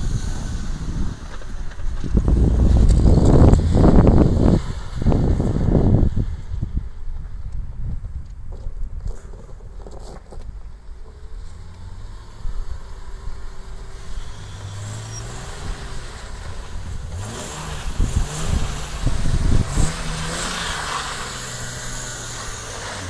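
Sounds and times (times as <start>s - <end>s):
tyres spinning on snow: 0.0s - 6.5s, 8.5s - 23.0s
car engine revving: 11.1s - 23.0s.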